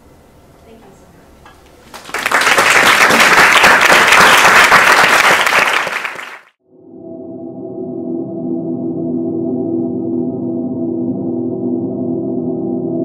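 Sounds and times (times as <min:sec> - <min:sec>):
audience applauding: 0:01.9 - 0:06.6.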